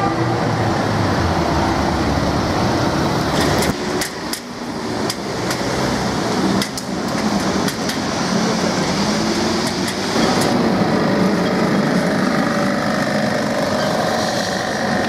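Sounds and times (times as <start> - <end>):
street noise: 0.0 - 15.0
tram motor hum and rumble: 0.0 - 15.0
metallic clicks and knocks: 3.4 - 5.7, 6.6 - 8.1.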